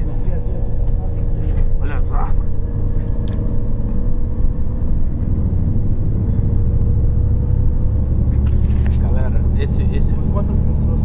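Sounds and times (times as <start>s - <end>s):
car road and engine rumble: 0.0s - 11.0s.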